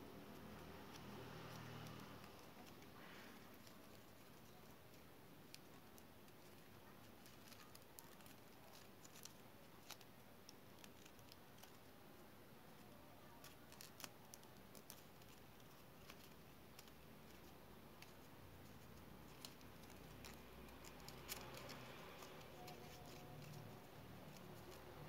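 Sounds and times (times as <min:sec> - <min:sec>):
paper strips clicking and rustling: 0:00.2 - 0:25.0.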